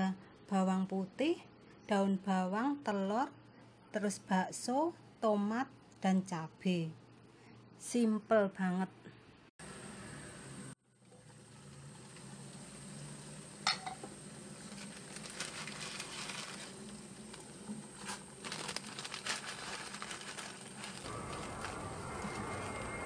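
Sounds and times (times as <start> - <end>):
pots and utensils clinking: 13.6 - 16.7.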